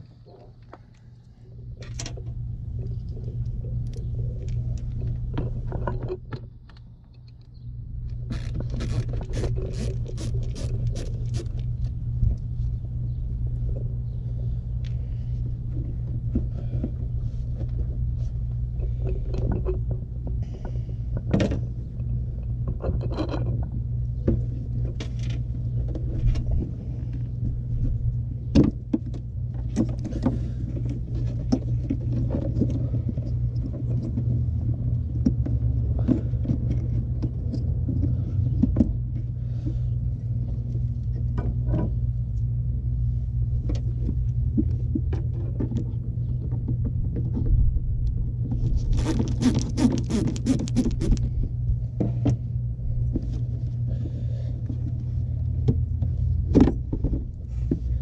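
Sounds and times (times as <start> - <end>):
steady low rumble: 0.0 - 58.0
hands handling plastic housing: 48.6 - 51.3.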